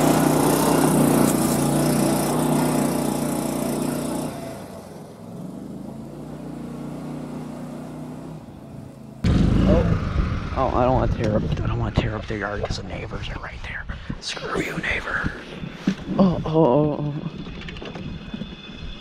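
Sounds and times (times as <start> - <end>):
golf cart engine climbing: 0.0 - 9.7, 15.3 - 19.0.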